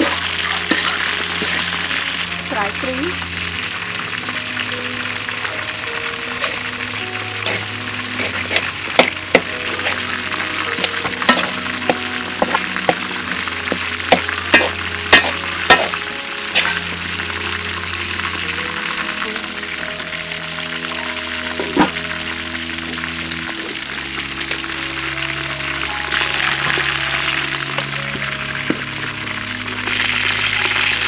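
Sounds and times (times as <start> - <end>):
metal spatula scraping a pan: 0.0 - 1.7, 6.3 - 6.8, 7.4 - 17.1
rice sizzling in a wok: 0.0 - 31.0
sustained musical notes: 0.0 - 31.0.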